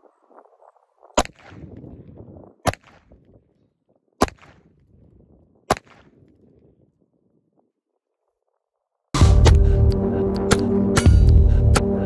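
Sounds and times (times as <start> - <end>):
pistol shots: 1.2 - 1.7, 2.6 - 3.2, 4.2 - 4.7, 5.7 - 6.3.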